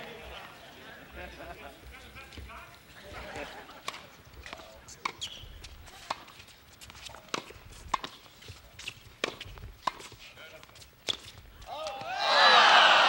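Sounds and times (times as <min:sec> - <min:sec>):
tennis ball bouncing on court: 0:03.8 - 0:05.3, 0:07.2 - 0:08.2, 0:08.8 - 0:12.2
tennis ball hit by racket: 0:07.3 - 0:08.2, 0:09.2 - 0:10.1.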